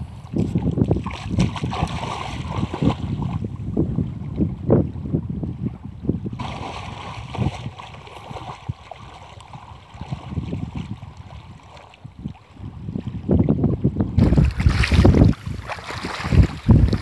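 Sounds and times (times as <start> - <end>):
shallow river water: 0.0 - 17.0
wind buffeting microphone: 0.0 - 17.0.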